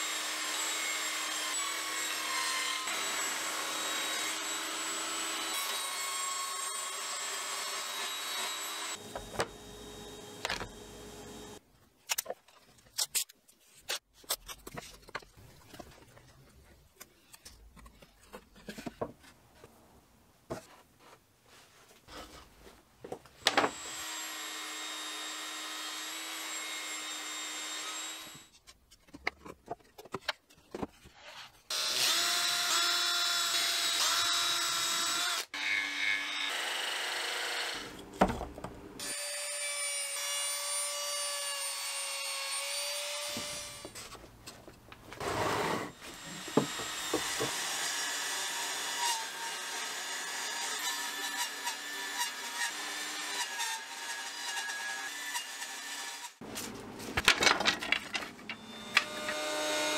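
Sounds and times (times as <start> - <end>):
jigsaw cutting plywood: 45.2 - 56.3.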